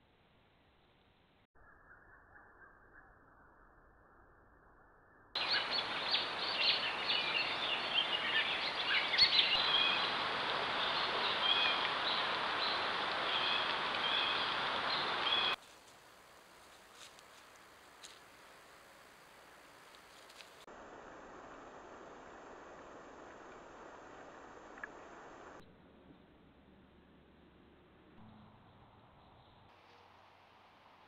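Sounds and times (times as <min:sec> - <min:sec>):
small birds chirping: 0:05.4 - 0:15.6.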